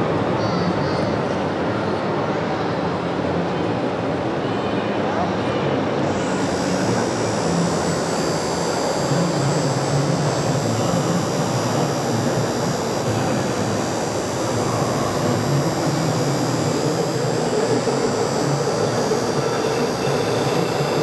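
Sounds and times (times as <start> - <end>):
busy exhibition hall din: 0.0 - 21.0.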